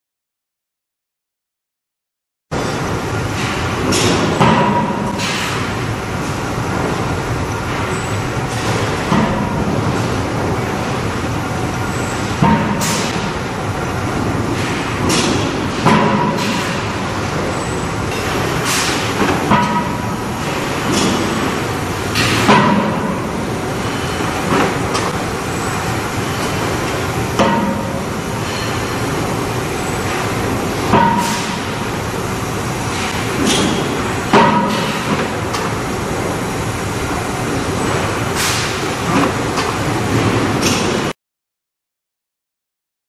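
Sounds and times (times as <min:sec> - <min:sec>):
shop machinery din: 0:02.5 - 0:41.2
forging press striking steel: 0:12.3 - 0:13.4, 0:14.6 - 0:17.0, 0:18.1 - 0:25.2, 0:27.4 - 0:29.0, 0:30.8 - 0:31.9.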